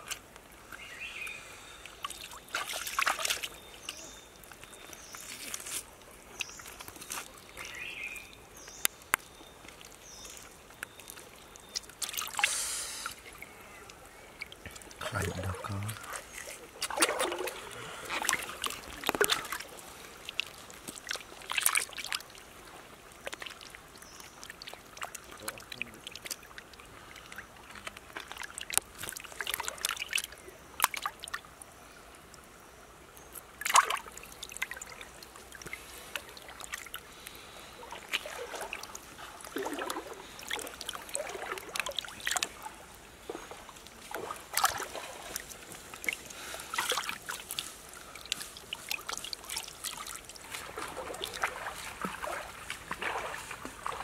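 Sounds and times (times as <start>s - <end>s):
water trickling: 0.0s - 54.0s
hands splashing in stream water: 1.9s - 13.2s, 14.4s - 22.5s, 33.5s - 54.0s.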